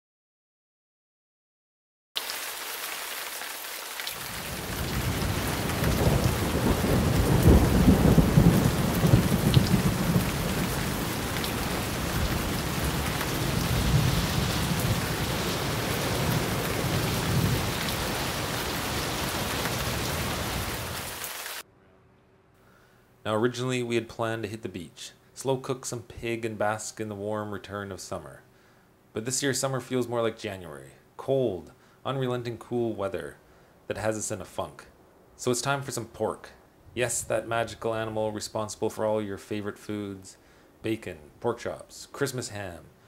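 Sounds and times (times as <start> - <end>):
heavy rain: 2.2 - 21.6
thunder rumbling: 4.3 - 21.1.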